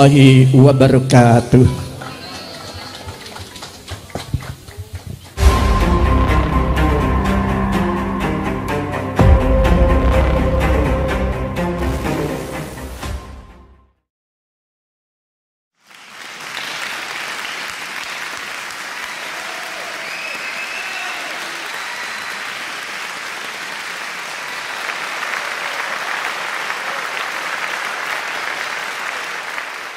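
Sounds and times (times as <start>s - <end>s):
crowd applause: 1.7s - 7.3s, 15.8s - 29.9s
faint shouts or whistles: 19.8s - 22.2s.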